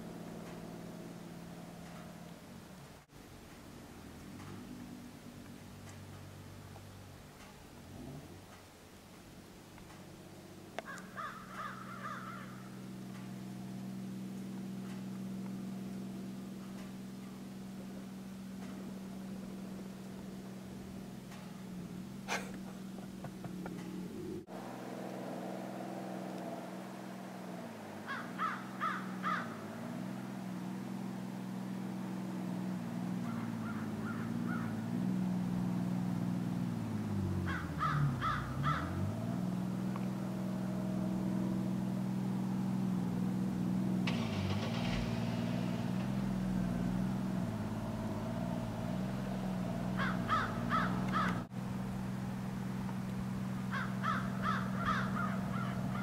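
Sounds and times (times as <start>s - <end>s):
crows cawing: 10.8s - 12.8s, 28.0s - 29.7s, 33.2s - 34.8s, 37.4s - 39.1s, 49.9s - 51.5s, 53.6s - 56.0s
boat engine running: 12.4s - 56.0s.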